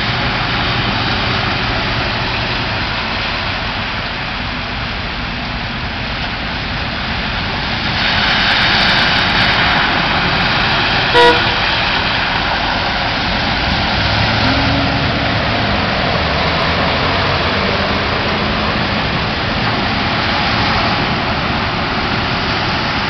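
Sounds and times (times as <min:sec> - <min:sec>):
heavy rain: 0:00.0 - 0:23.0
tyres spraying through floodwater: 0:00.0 - 0:23.0
car horn toot: 0:11.1 - 0:11.8.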